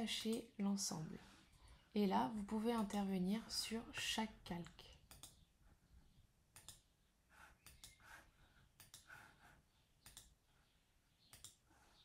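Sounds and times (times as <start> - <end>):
faint computer mouse clicks: 4.6 - 5.4, 6.5 - 6.9, 7.6 - 8.0, 8.8 - 9.1, 10.0 - 10.4, 11.3 - 11.6.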